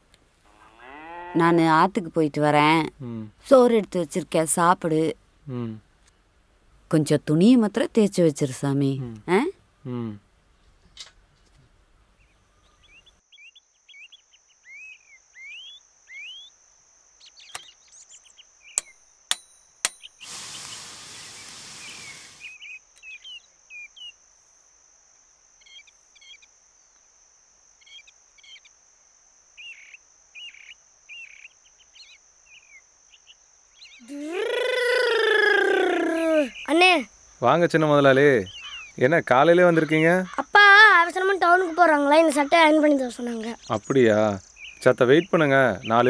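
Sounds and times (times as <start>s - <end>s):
birds chirping: 20.0s - 24.2s, 29.6s - 46.0s
short hiss: 20.2s - 22.6s
high-pitched insect drone: 29.6s - 46.0s.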